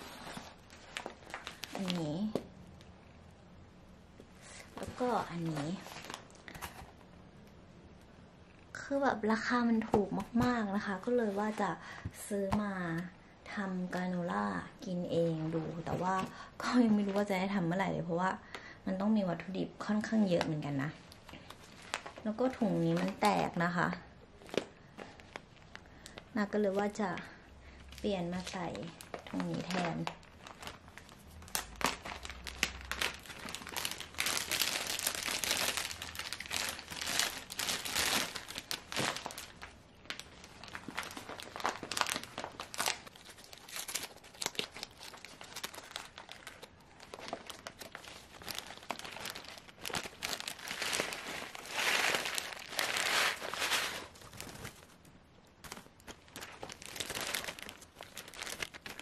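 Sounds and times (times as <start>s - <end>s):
plastic bag crinkling: 0.0s - 2.4s, 28.0s - 59.0s.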